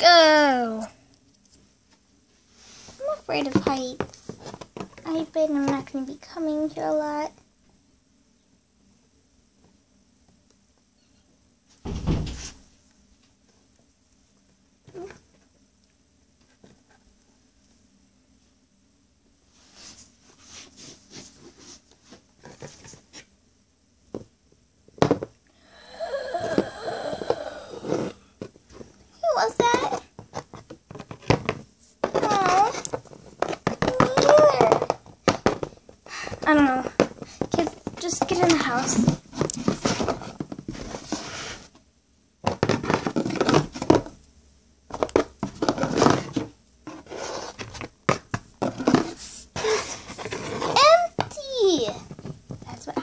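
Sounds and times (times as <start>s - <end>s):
plastic toy rubbing on carpet: 38.3s - 41.7s, 46.9s - 47.8s, 48.6s - 51.1s.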